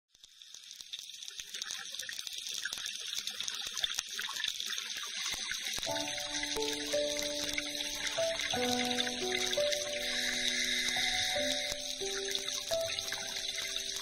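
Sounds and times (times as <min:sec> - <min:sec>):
underwater crackling hiss: 0:00.2 - 0:14.0
sustained music notes: 0:05.9 - 0:14.0.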